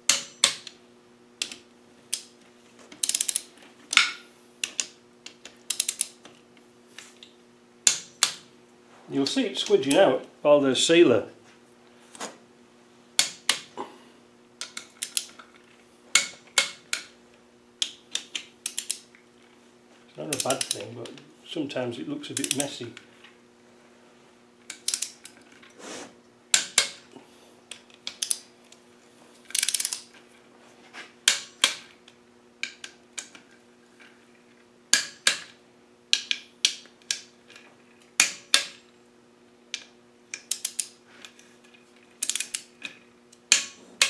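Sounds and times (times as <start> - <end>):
steady low hum: 0.0 - 44.0
ratchet wrench clicking: 3.0 - 3.5, 5.7 - 6.2, 17.8 - 19.0, 24.7 - 25.3, 29.5 - 30.1, 42.2 - 42.7.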